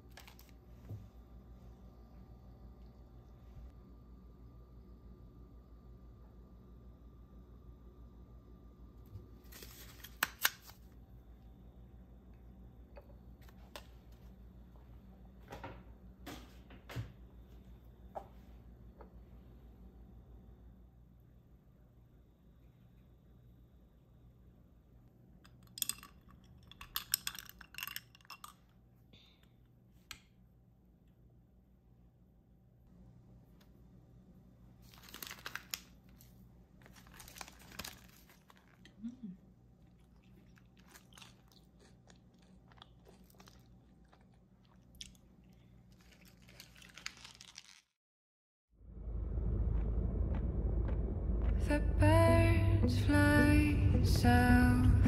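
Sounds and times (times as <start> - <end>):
low steady hum: 0.0 - 47.0, 48.8 - 55.0
small hard objects clinking: 25.5 - 28.6.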